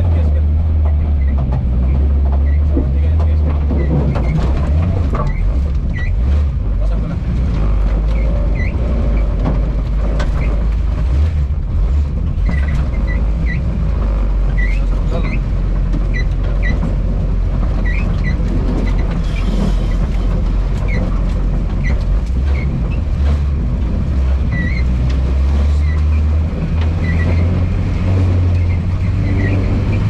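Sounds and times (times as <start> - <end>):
car engine low rumble: 0.0 - 30.0
high-pitched squeaks: 7.6 - 9.4, 12.4 - 16.9, 24.5 - 30.0.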